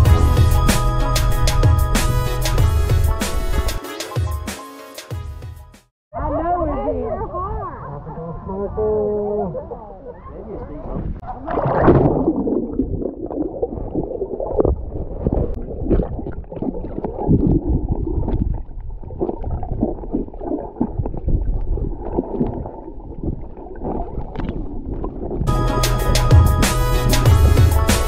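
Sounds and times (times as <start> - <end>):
muffled water gurgling and sloshing: 10.4 - 25.5.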